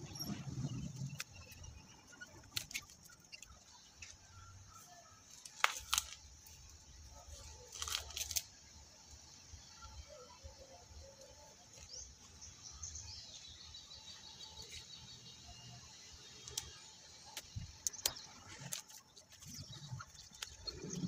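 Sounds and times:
sharp clicks and snaps: 16.4s - 19.0s.

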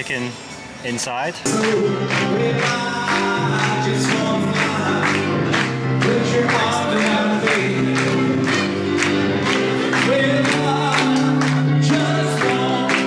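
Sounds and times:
song with singing over a beat: 1.4s - 13.0s.

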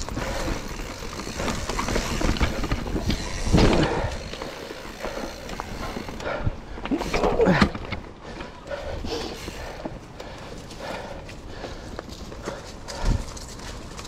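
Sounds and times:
tyres crunching over rock: 0.0s - 8.6s
bike rattling: 0.0s - 14.0s.

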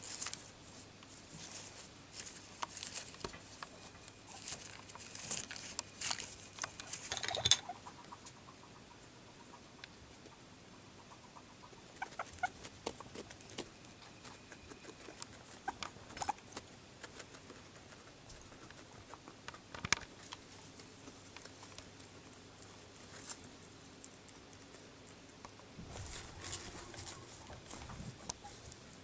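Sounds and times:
guinea pig squeaks: 3.7s - 6.2s, 6.9s - 9.7s, 11.0s - 19.4s, 25.8s - 29.0s
teeth nibbling cardboard: 11.0s - 29.0s.

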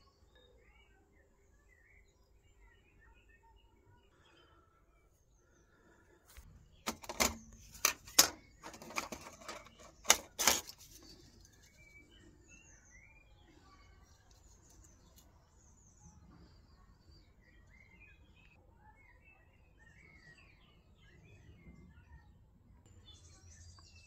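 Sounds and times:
faint bird chirps: 0.0s - 7.8s, 8.4s - 24.0s
plastic housing clicking and snapping: 6.9s - 11.0s.

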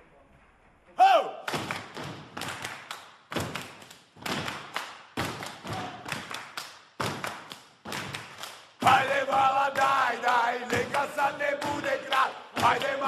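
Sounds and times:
men stomping and clapping: 1.4s - 13.0s
men chanting in unison: 8.8s - 13.0s.

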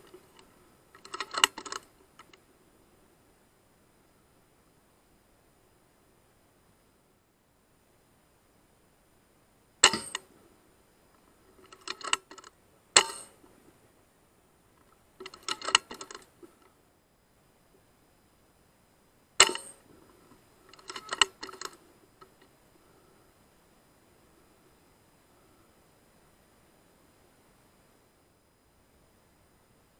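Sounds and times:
rifle action metallic clicks: 0.0s - 2.4s, 9.8s - 10.2s, 11.6s - 13.4s, 15.2s - 16.3s, 19.4s - 19.8s, 20.7s - 22.4s
air rifle shots: 9.8s - 10.2s, 13.0s - 13.4s, 19.4s - 19.8s.

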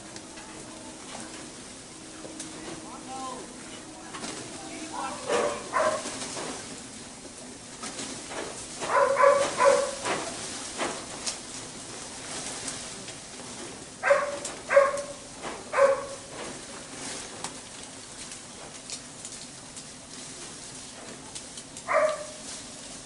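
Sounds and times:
faint clicks and rustles: 0.0s - 23.0s
dog barking: 5.3s - 6.1s, 8.9s - 10.0s, 14.0s - 16.2s, 21.9s - 22.4s.

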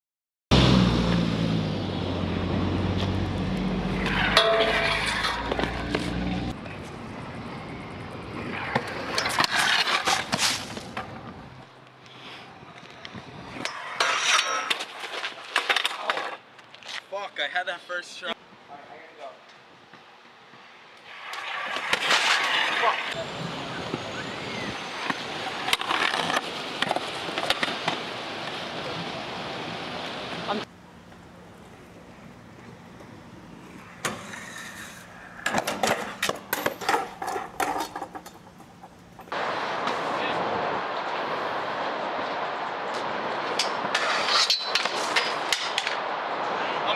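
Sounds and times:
scooter wheels rolling on concrete: 1.1s - 18.3s, 18.9s - 46.9s
scooter clattering on concrete steps: 35.4s - 39.3s.

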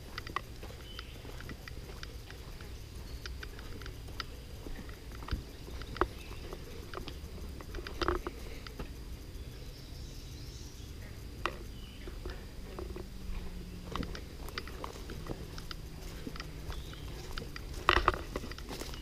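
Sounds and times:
footsteps on dirt trail: 0.0s - 9.2s, 11.0s - 19.0s
twigs and leaves snapping: 13.8s - 19.0s.

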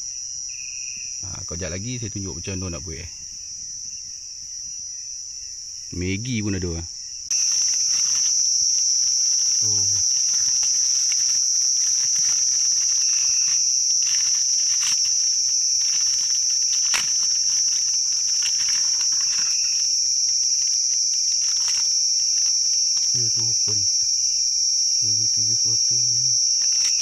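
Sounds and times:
night insects chirping: 0.0s - 27.0s
plastic pouch crinkling: 7.3s - 23.1s.

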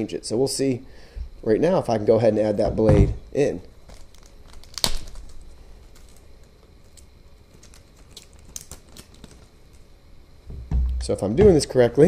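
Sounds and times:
plastic sleeve crinkling: 3.6s - 10.0s.

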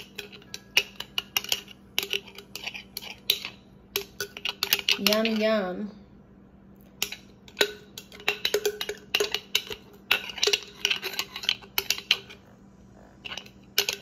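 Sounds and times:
kitchenware clinking and knocking: 7.0s - 12.4s, 13.2s - 14.0s.

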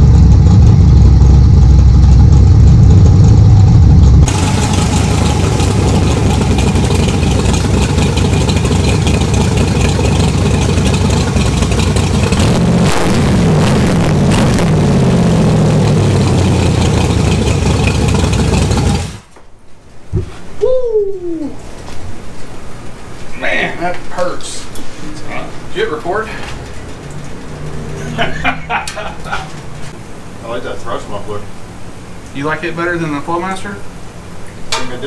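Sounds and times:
v eight engine running and revving: 0.0s - 19.2s.

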